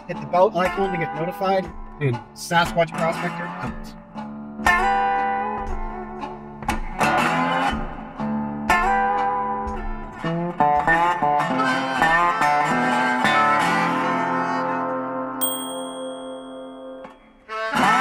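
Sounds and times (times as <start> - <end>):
plucked guitar notes: 15.4 - 17.5.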